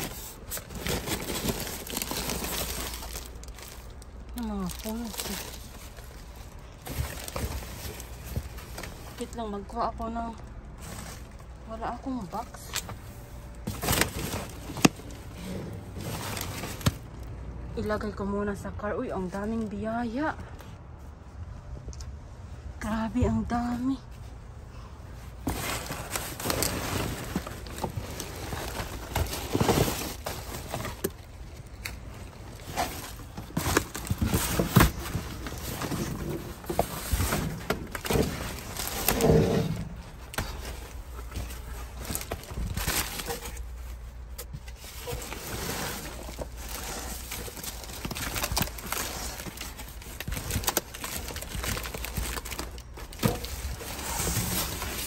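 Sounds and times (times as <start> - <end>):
plastic and cardboard rustling: 0.0 - 18.0, 25.0 - 55.0.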